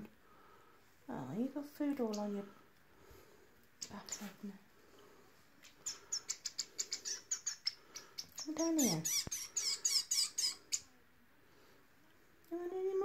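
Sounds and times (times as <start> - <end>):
finches begging chirps: 5.6 - 10.9.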